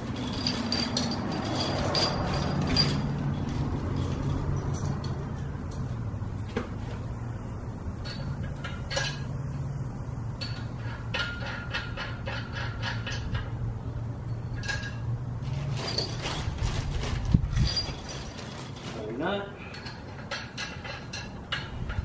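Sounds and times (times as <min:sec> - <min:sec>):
bolts and nuts clinking: 0:00.0 - 0:22.0
plastic bag rustling: 0:15.4 - 0:19.3.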